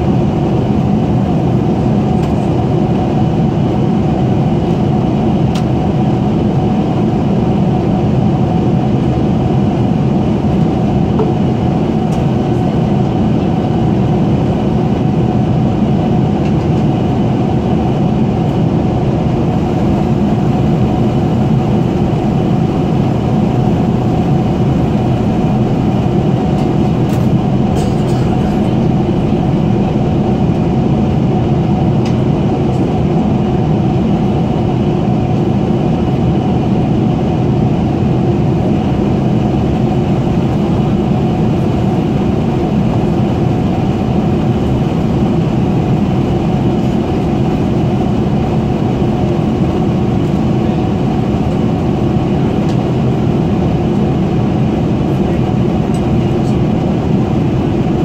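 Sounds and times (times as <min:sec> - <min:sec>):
airplane cabin drone: 0:00.0 - 0:58.0.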